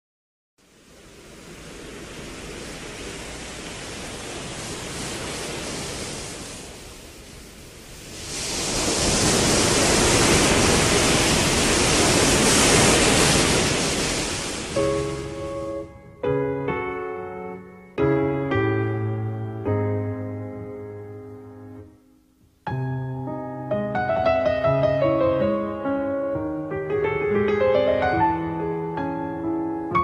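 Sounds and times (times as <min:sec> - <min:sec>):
rushing noise: 0:00.6 - 0:16.8.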